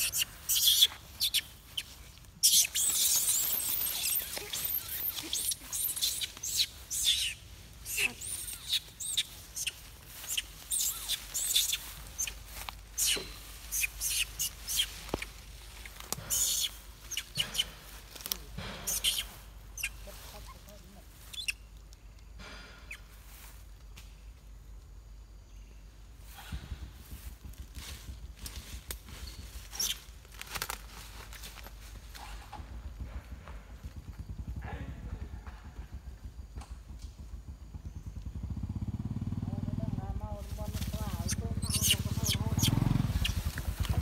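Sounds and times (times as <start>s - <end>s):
baby monkey crying squeals: 0.0s - 12.4s, 13.0s - 15.0s, 16.3s - 17.7s, 18.9s - 20.2s, 21.3s - 21.6s, 41.2s - 43.5s.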